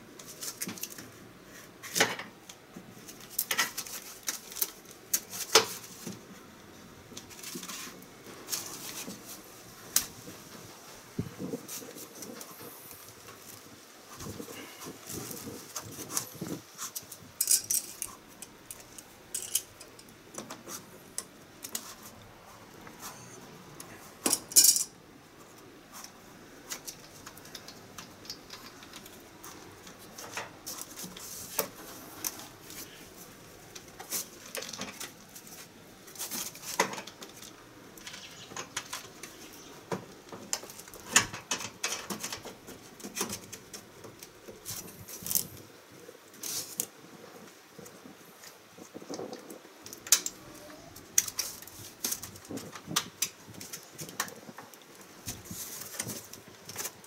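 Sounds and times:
hands handling copper pipes: 0:11.2 - 0:24.9.

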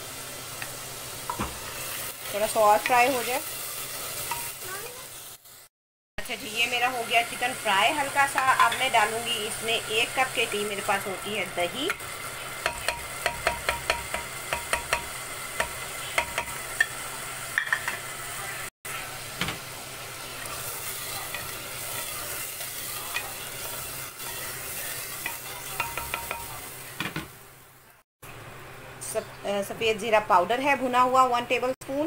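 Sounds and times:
food sizzling in hot oil: 0:00.0 - 0:28.0
wooden spoon knocking on pot: 0:12.6 - 0:16.9.

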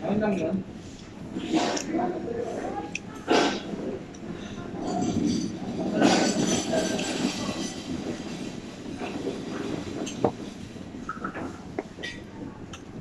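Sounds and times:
restaurant hubbub of voices: 0:00.0 - 0:13.0
tableware clinking: 0:04.8 - 0:08.0.

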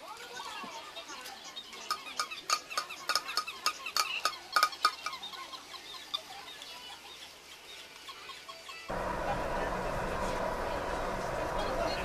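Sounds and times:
toys clattering with ringing taps: 0:01.8 - 0:05.2.

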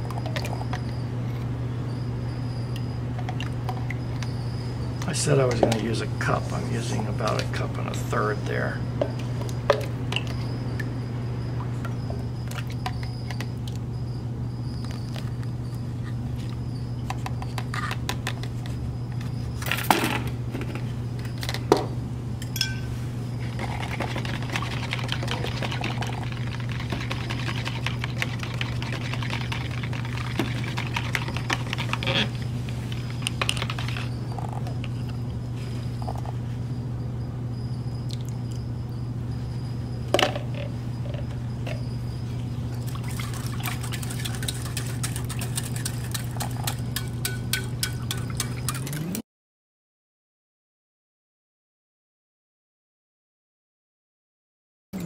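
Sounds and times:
steady low hum: 0:00.0 - 0:49.0
rapid whisking in plastic cup: 0:23.5 - 0:34.1, 0:43.0 - 0:49.0
utensils clinking against containers: 0:43.1 - 0:49.2.

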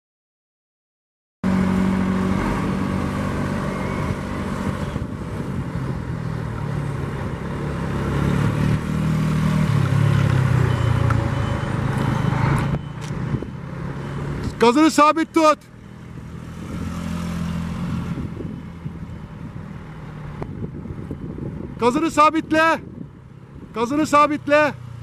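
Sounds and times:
motorcycle engine revving: 0:01.4 - 0:14.6, 0:15.7 - 0:19.0.

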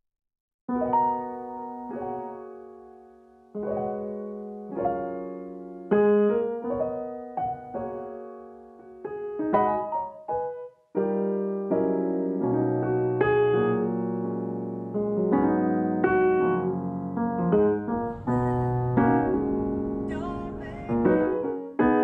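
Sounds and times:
gentle piano melody: 0:00.7 - 0:22.0.

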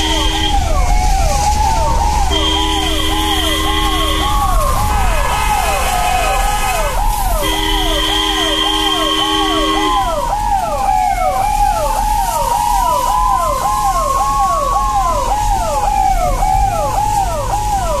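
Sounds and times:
horn blare: 0:00.0 - 0:11.0
ambulance siren yelp and wail: 0:00.0 - 0:18.0.

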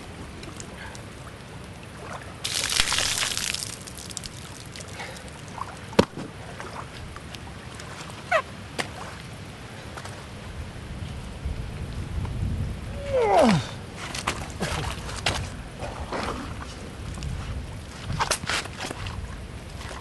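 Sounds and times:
water pouring from boot: 0:02.4 - 0:06.2.

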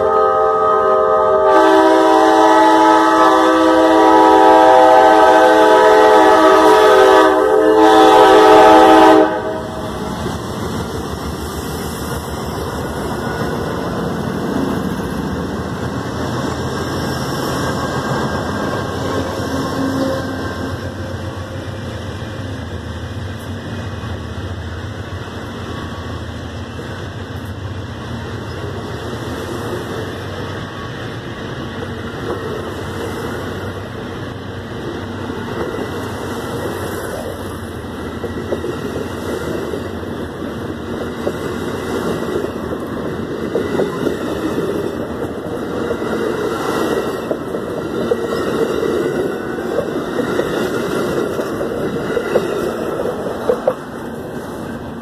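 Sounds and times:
locomotive air horn chord: 0:00.0 - 0:10.0, 0:19.2 - 0:21.6
passenger cars rolling rumble: 0:09.4 - 0:55.0.

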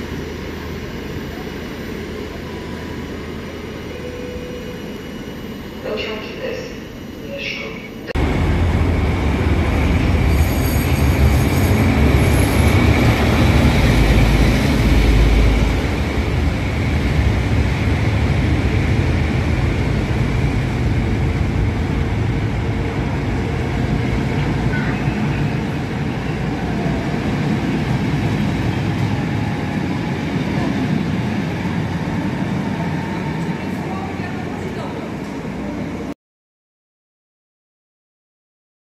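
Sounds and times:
train coaches clattering on track: 0:05.9 - 0:16.4, 0:22.9 - 0:36.1
diesel locomotive engine rumble: 0:08.1 - 0:36.1.

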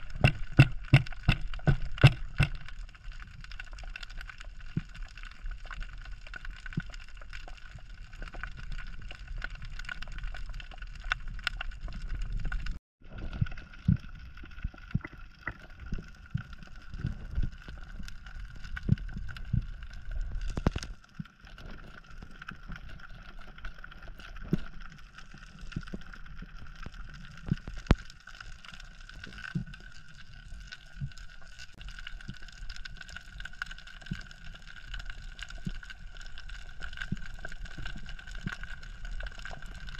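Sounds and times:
muffled underwater rumble: 0:00.0 - 0:39.9.

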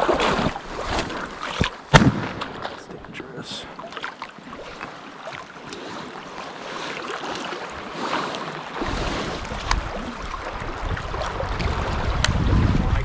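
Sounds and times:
waves lapping on rocks: 0:00.0 - 0:13.0
sharp crack: 0:01.6 - 0:02.9
wind buffeting microphone: 0:08.8 - 0:13.0.

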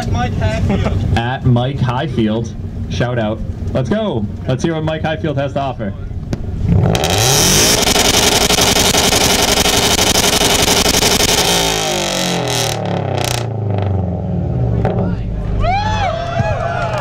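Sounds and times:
car engine revving: 0:06.3 - 0:15.7.

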